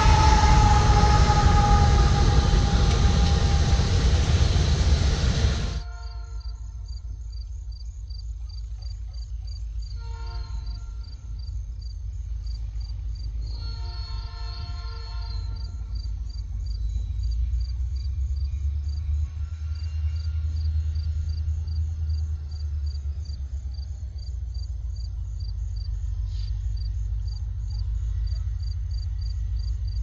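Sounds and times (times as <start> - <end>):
distant train horn: 0.0 - 6.9, 9.9 - 11.3, 13.4 - 16.0, 19.2 - 21.2
crickets chirping: 0.0 - 14.3, 15.0 - 30.0
low train rumble: 0.0 - 30.0.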